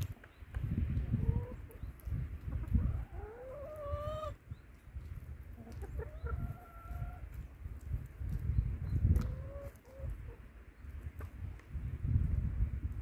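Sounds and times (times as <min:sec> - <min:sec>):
hens calling: 0:01.0 - 0:04.4, 0:05.5 - 0:07.4, 0:09.1 - 0:10.5.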